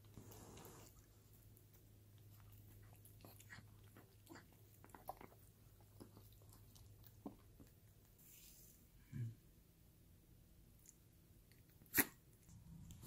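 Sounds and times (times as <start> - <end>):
dog chewing food: 0.0 - 8.0.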